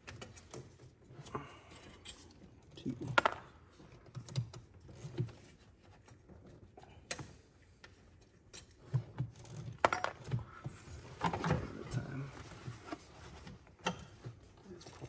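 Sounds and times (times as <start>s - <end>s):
small parts and hand tools clicking: 0.0s - 10.4s.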